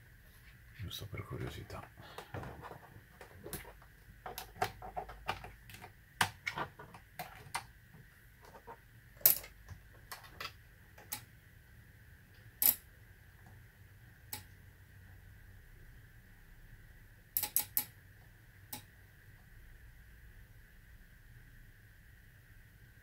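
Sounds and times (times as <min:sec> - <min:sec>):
clicks and light taps of handled parts: 0:09.2 - 0:11.3.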